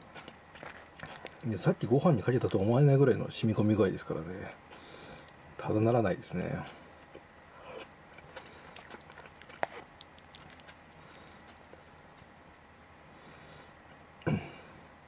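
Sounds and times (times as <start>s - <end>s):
person chewing food: 0.0s - 2.7s, 4.6s - 5.4s, 6.6s - 12.4s.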